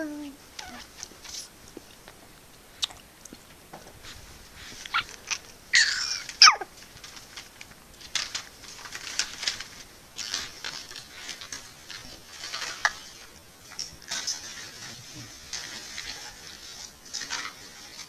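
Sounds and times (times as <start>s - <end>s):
baby squealing: 4.9s - 6.7s.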